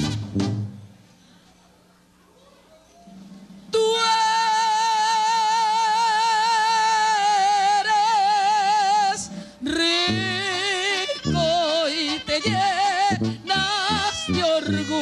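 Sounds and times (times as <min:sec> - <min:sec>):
woman singing with vibrato: 0:03.7 - 0:15.0.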